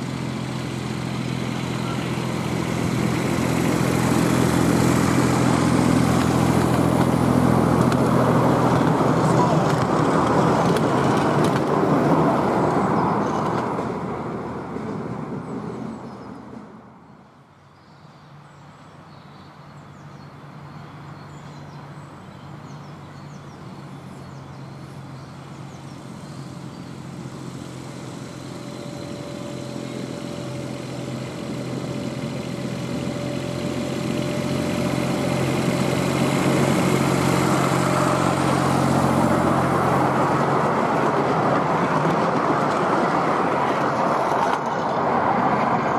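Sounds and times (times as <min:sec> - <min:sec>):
miniature train running: 0:00.0 - 0:14.3, 0:24.7 - 0:45.9
diesel locomotive engine whining: 0:00.0 - 0:45.9.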